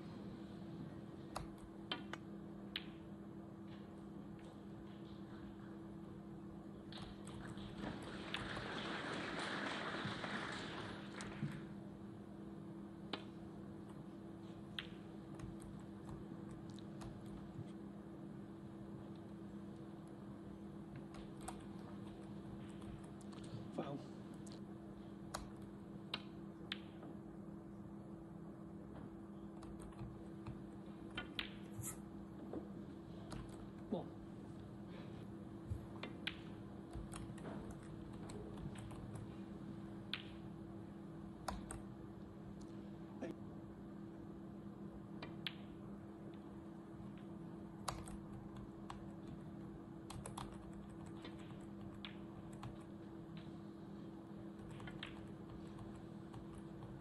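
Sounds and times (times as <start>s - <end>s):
steady low hum: 0.0s - 57.0s
snooker balls clicking: 1.4s - 5.5s, 6.8s - 9.3s, 13.0s - 17.8s, 25.3s - 27.2s, 30.0s - 31.8s, 35.7s - 39.4s, 40.0s - 40.6s, 45.2s - 49.4s, 50.1s - 54.1s, 54.7s - 56.9s
computer keyboard typing: 15.3s - 17.8s, 21.0s - 23.5s, 29.6s - 31.5s, 33.3s - 33.9s, 36.0s - 39.3s, 41.4s - 41.9s, 47.8s - 49.4s, 50.0s - 52.9s, 54.5s - 57.0s.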